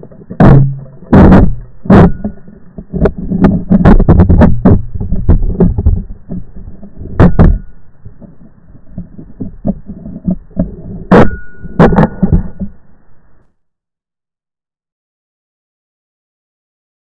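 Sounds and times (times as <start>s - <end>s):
muffled thumps and rubbing on microphone: 0.0s - 12.8s.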